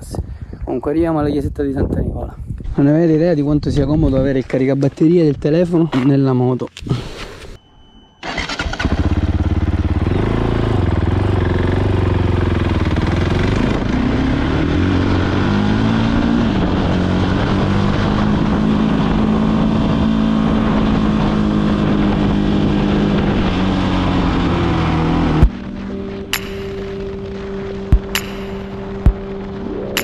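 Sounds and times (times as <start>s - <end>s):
motorcycle engine running: 8.3s - 30.0s.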